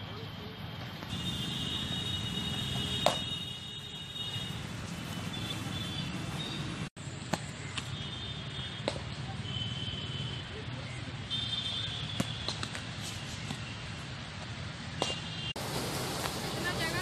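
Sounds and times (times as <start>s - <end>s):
outdoor background noise: 0.0s - 17.0s
cricket bat striking ball: 2.9s - 3.4s.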